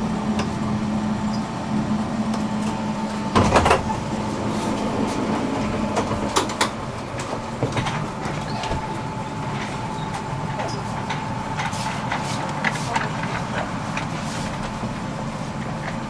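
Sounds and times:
tram electrical hum: 0.0 - 16.0
sliding doors clattering: 2.2 - 15.0.

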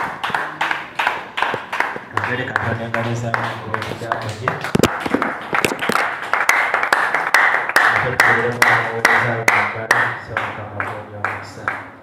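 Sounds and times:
congregation clapping in rhythm: 0.0 - 12.0.

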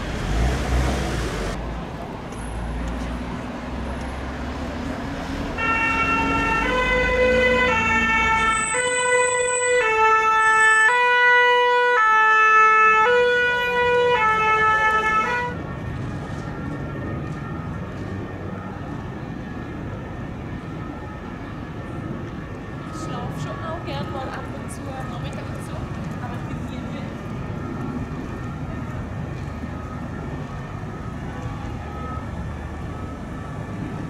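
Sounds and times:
low traffic rumble: 0.0 - 34.0
two-tone siren: 5.6 - 25.6, 27.0 - 34.0.

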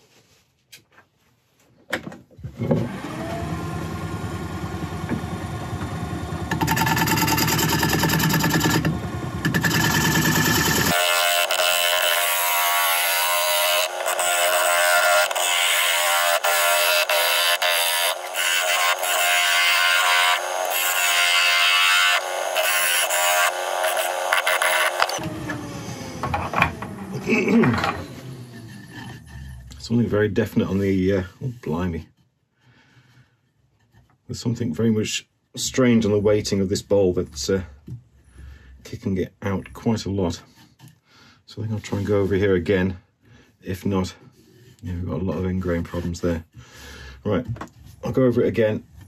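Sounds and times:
wood lathe humming: 2.7 - 29.8
gouge scraping wood: 28.5 - 29.7.

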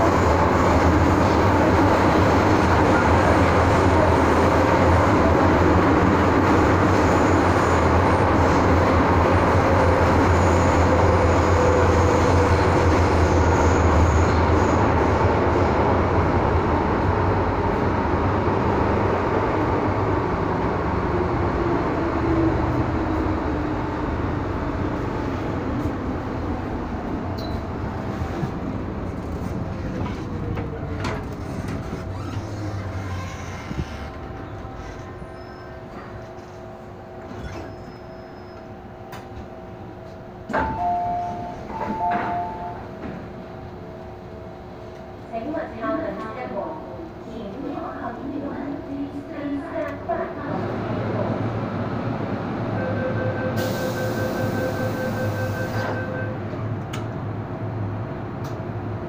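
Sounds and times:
train wheels rumbling: 0.0 - 46.6.

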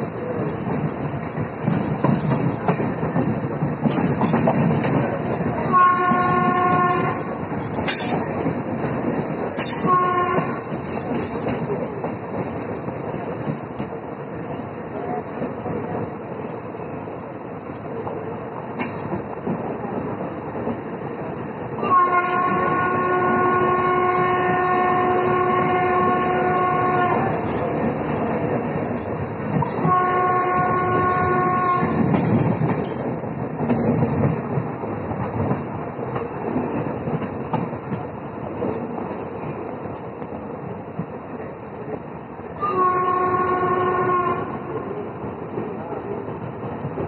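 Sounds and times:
train wheels rumbling on rails: 0.0 - 47.0
train horn blasts: 5.6 - 7.4, 9.6 - 10.7, 21.8 - 27.4, 29.6 - 32.1, 42.6 - 44.8.

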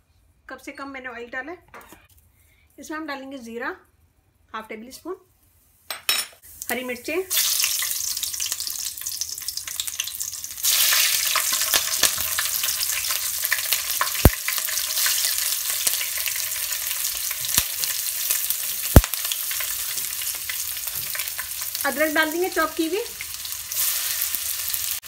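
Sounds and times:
seeds sizzling in hot oil: 6.4 - 25.0.

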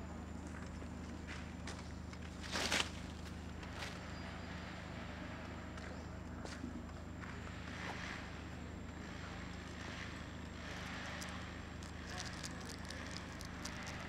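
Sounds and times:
low outdoor hum: 0.0 - 14.0
faint clicks and crackles: 5.8 - 14.0.

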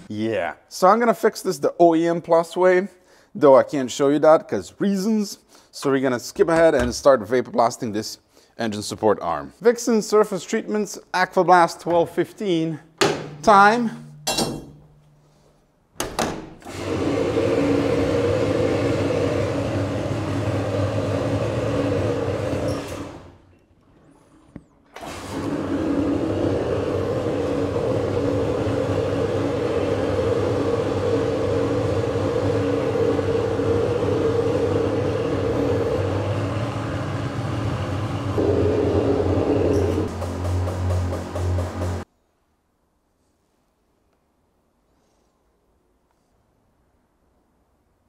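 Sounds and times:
machine hum: 13.1 - 15.5, 16.6 - 42.1.

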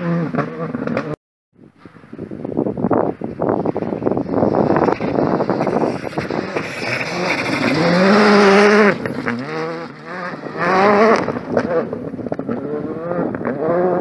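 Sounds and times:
rally car engine passing at speed: 3.8 - 14.0.

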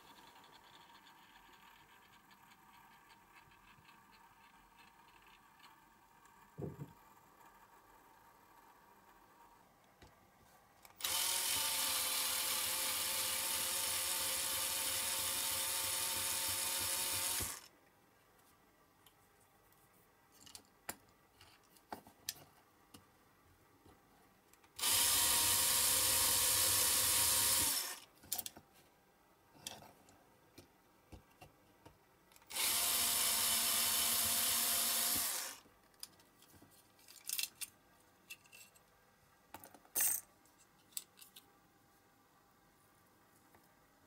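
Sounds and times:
electric drill drilling metal: 11.0 - 17.7, 24.8 - 28.0, 32.5 - 35.6
small metal parts clicking: 37.0 - 38.8.

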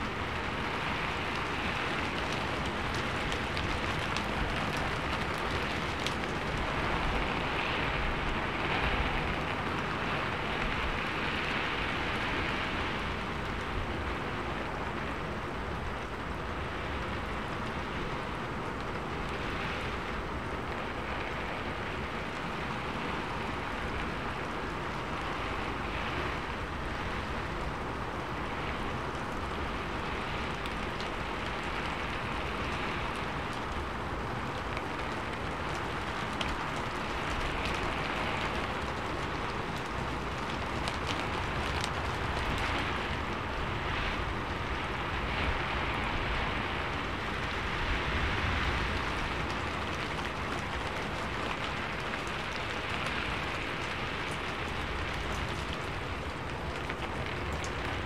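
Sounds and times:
rain on a metal roof: 0.0 - 58.0.

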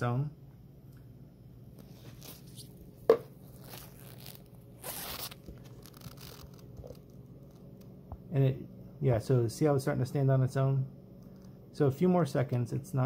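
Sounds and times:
gloved hands rubbing and rustling: 1.8 - 7.8.

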